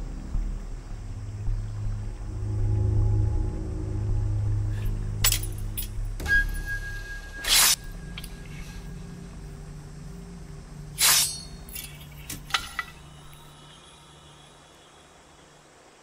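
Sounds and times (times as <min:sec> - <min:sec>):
low music drone: 0:00.0 - 0:16.0
light metal clinks: 0:05.2 - 0:06.7, 0:11.0 - 0:13.5
metallic sword swishes: 0:07.3 - 0:07.9, 0:11.0 - 0:11.9.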